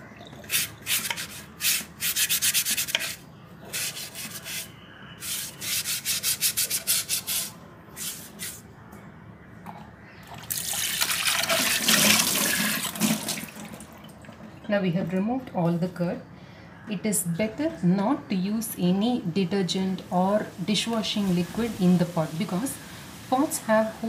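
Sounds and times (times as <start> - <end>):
water spraying from tap: 0.4 - 1.8
scrub pad rasping on clay pot: 0.5 - 8.6.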